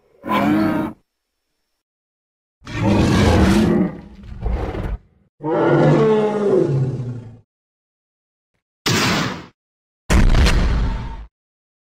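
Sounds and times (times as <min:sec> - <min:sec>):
dinosaur roar: 0:00.2 - 0:01.0, 0:02.6 - 0:07.4.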